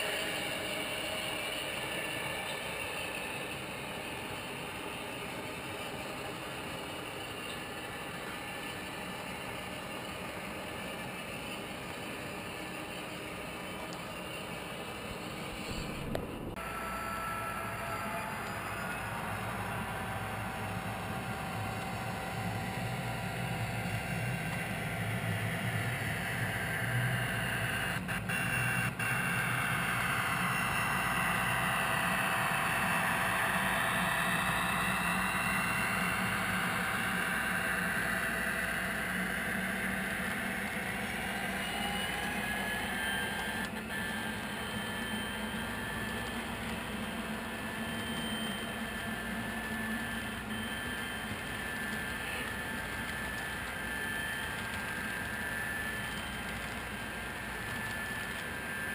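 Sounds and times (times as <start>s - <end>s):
model train rolling past: 0.0s - 28.0s.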